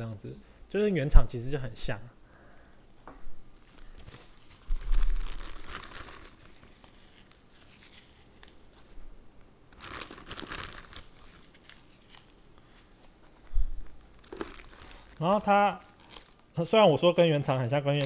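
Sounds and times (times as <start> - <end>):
packaging crinkling and rustling: 3.6 - 9.0, 9.7 - 18.0.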